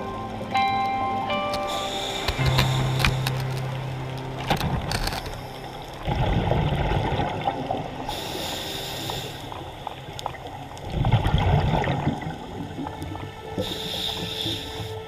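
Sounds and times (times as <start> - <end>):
underwater clicks: 0.8 - 6.4
gurgling exhaled bubbles: 4.4 - 14.8.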